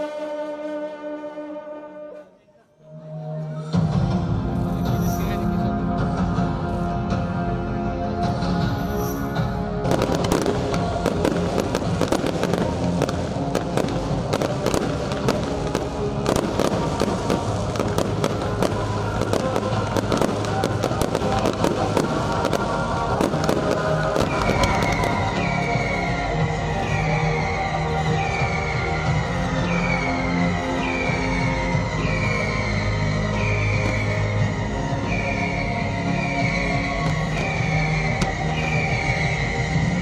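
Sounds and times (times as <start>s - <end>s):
music playing: 0.0s - 40.0s
fireworks bangs and crackles: 8.2s - 40.0s.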